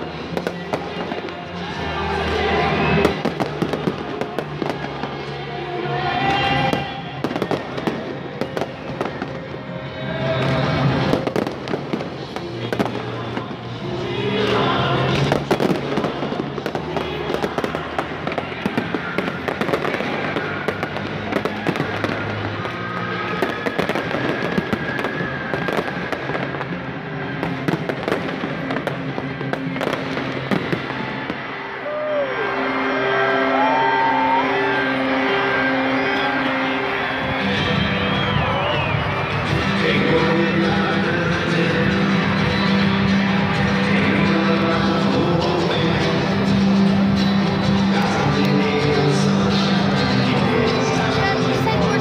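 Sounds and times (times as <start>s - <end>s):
fireworks popping and crackling: 0.0s - 1.4s, 2.3s - 5.4s, 6.2s - 31.5s, 37.6s - 52.0s
music playing: 0.0s - 52.0s.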